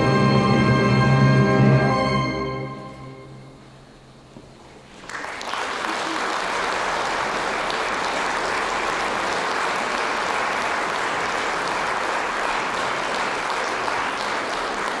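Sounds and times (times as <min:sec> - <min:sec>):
audience applauding: 0:04.9 - 0:15.0.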